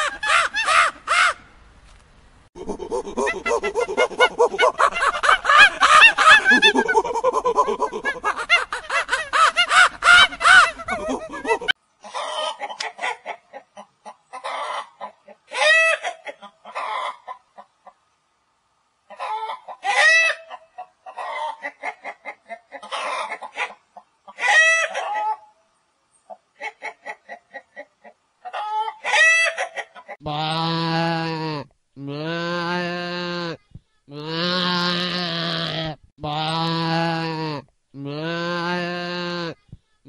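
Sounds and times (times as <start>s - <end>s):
chickens clucking and squawking: 0.0s - 1.4s, 2.6s - 18.3s, 19.0s - 30.2s.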